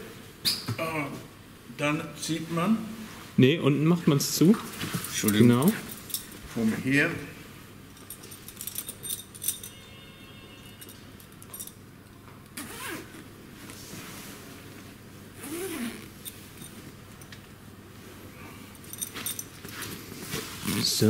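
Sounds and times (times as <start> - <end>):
zipper being fastened: 12.6 - 13.2, 15.4 - 16.7, 20.5 - 21.0.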